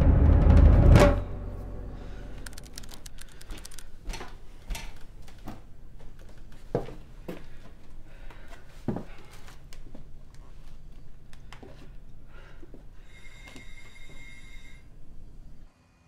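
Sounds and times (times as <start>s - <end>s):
loud drum hit: 0.0s - 2.4s
music score: 0.0s - 2.6s.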